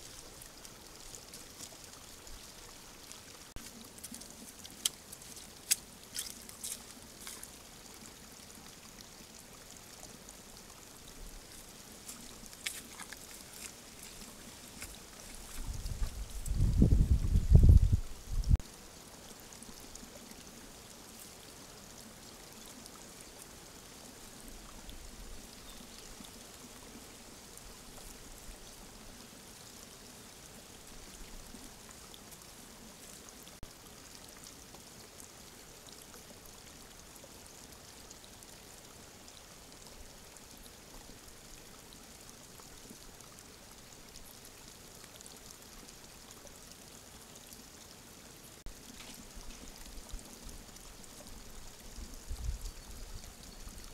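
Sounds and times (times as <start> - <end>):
faint ticks: 0.0 - 7.6
outdoor ambience hiss: 0.0 - 53.9.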